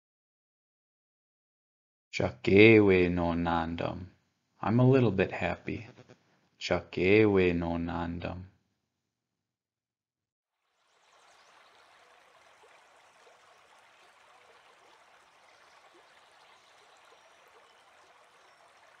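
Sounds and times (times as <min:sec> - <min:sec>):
flowing stream: 0:10.6 - 0:19.0.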